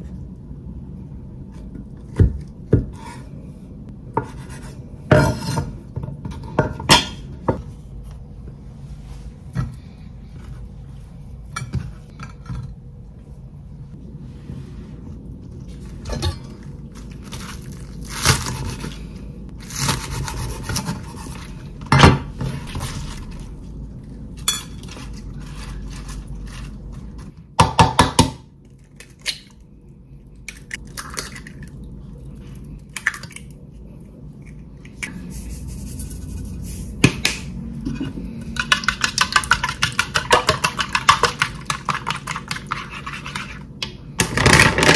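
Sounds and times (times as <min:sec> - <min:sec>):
utensil beating eggs in bowl: 0:38.5 - 0:43.8.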